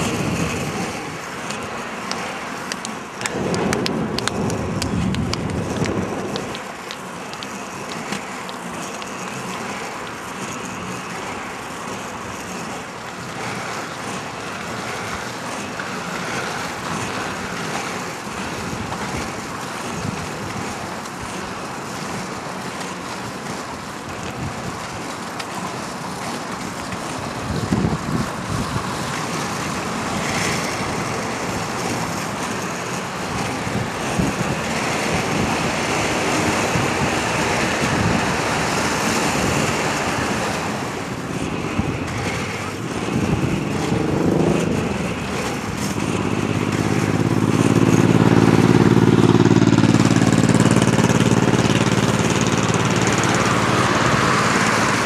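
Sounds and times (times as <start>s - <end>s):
skate wheels rolling on asphalt: 0.0s - 55.0s
low rumble: 3.2s - 6.8s.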